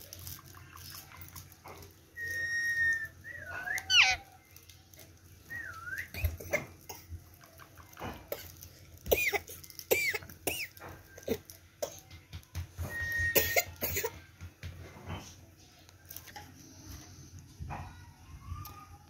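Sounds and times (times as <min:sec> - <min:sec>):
parakeet whistling and chirping: 0:02.2 - 0:04.2.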